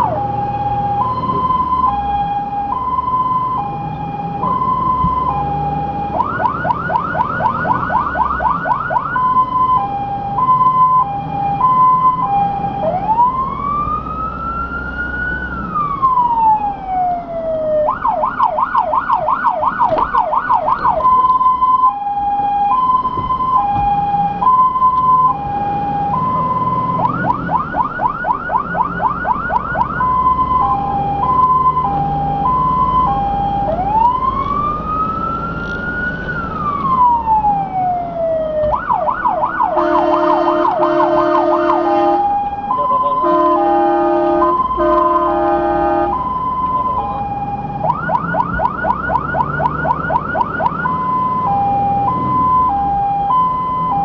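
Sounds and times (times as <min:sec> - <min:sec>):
fire engine siren: 0:00.0 - 0:54.0
truck engine rumbling: 0:00.0 - 0:54.0
horn blasts: 0:39.7 - 0:46.3.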